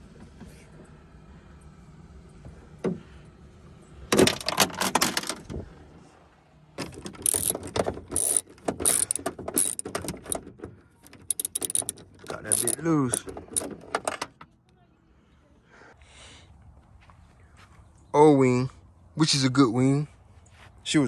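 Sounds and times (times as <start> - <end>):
hand ratchet clicking: 7.0 - 10.4, 11.0 - 13.7.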